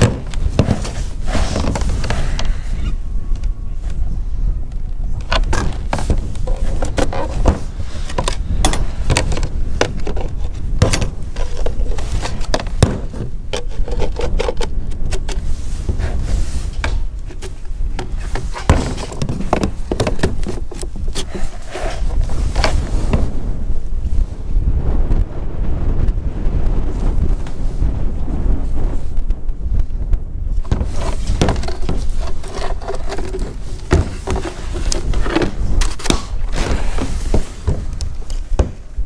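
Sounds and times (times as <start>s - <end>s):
plastic knocking and scraping: 0.0s - 2.5s, 5.2s - 23.3s, 30.6s - 38.9s
wind rumble on microphone: 0.0s - 39.0s.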